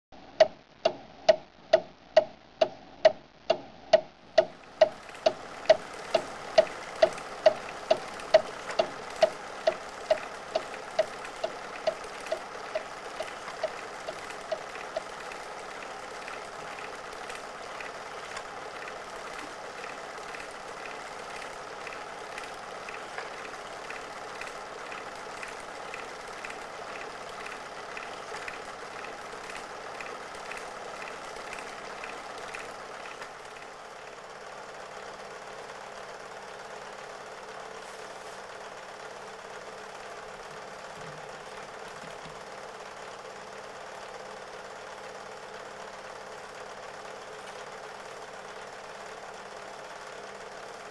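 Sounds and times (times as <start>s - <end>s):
sharp ringing ticks: 0.4s - 16.9s
faint regular ticking: 0.4s - 33.8s.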